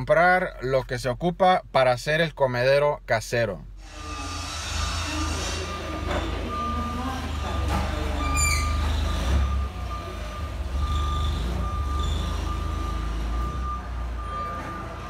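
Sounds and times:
forklift warning beeps: 4.0s - 15.0s.

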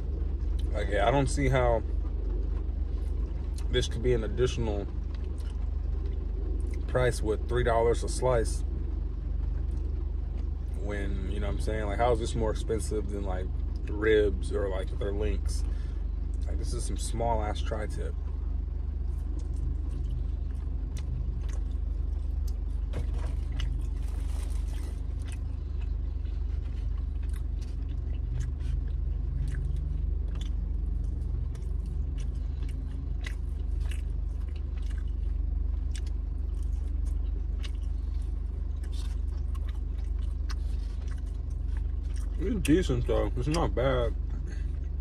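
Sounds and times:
low rumble of car cabin: 0.0s - 45.0s
person chewing: 19.0s - 45.0s.

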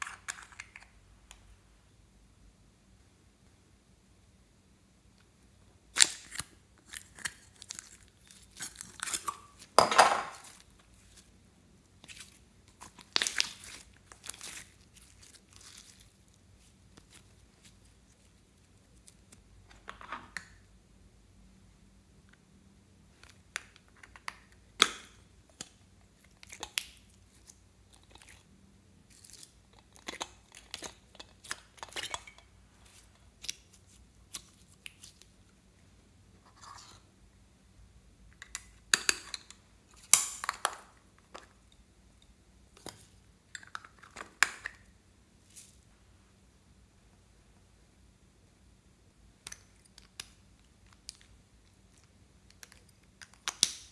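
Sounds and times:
slime squishing and crackling: 12.0s - 19.4s.

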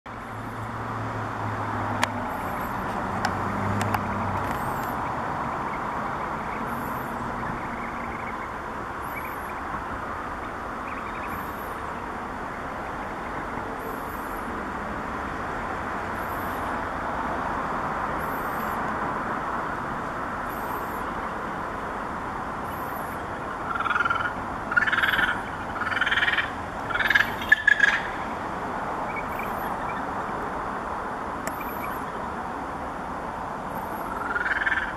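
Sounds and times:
steady background noise: 0.1s - 34.9s
bird chicks calling: 22.7s - 28.2s.

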